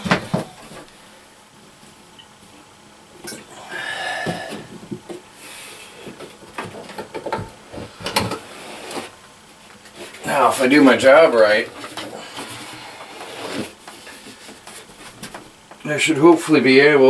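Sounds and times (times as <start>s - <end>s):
scraping rub: 8.4s - 9.2s, 11.9s - 15.2s.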